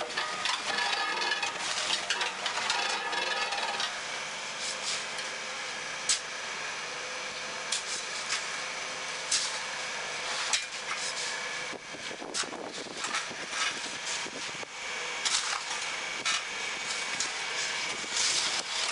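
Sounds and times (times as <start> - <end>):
shovel scraping concrete mix: 0.0 - 5.4, 6.0 - 6.3, 7.7 - 8.6, 9.3 - 11.5, 12.1 - 14.6, 15.2 - 18.9
machinery humming: 0.0 - 18.9.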